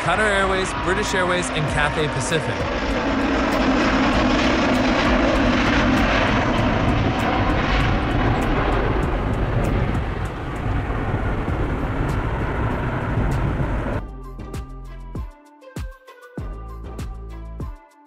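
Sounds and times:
jet engines at takeoff: 0:00.0 - 0:14.0.

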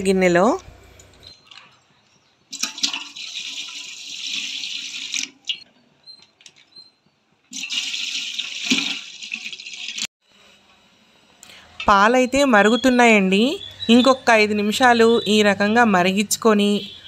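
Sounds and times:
milk pouring and splashing into pot: 0:02.5 - 0:05.6, 0:07.5 - 0:10.1.

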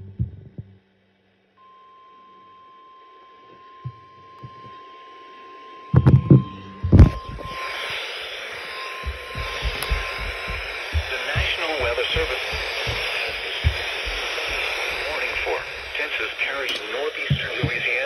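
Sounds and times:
static hiss: 0:01.2 - 0:18.0
steady alarm tone: 0:01.6 - 0:18.0
loud knocks: 0:09.1 - 0:15.4, 0:17.2 - 0:18.0.

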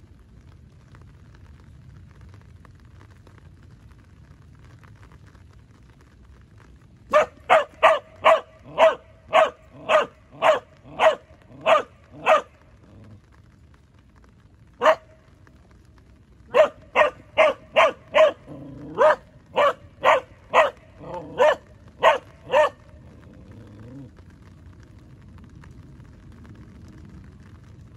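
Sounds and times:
dog barking: 0:07.1 - 0:13.0, 0:14.8 - 0:15.1, 0:16.5 - 0:24.0.

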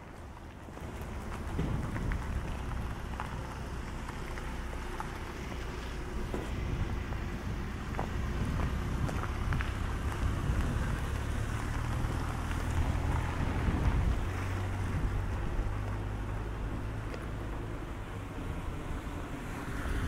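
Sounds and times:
mechanical hum and rumble: 0:00.0 - 0:11.1.

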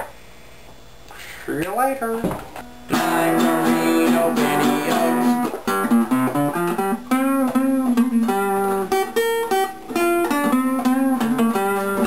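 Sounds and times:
classical guitar fingerpicked: 0:02.9 - 0:12.0.

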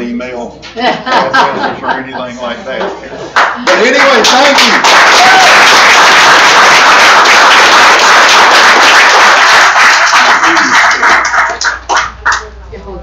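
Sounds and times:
audience applauding: 0:03.4 - 0:12.5.

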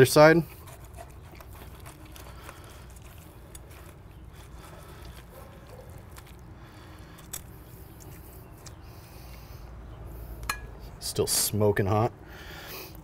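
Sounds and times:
knife carving chicken: 0:00.0 - 0:09.5.

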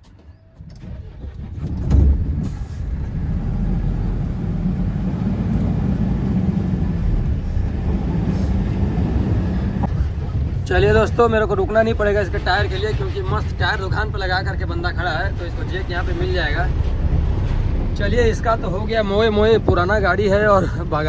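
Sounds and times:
truck diesel engine: 0:00.0 - 0:21.0
loud thump: 0:01.5 - 0:02.9.

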